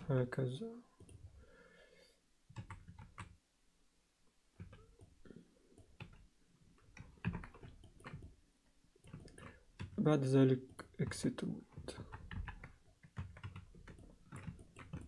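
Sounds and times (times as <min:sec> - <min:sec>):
keyboard keys clicking: 0:02.6 - 0:03.4, 0:06.9 - 0:08.4, 0:09.0 - 0:10.0, 0:10.8 - 0:15.0.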